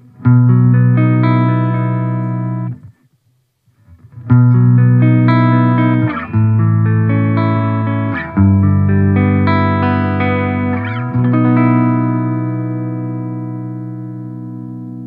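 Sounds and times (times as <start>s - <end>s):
electric guitar chords ringing: 0.0s - 2.8s, 4.3s - 15.0s.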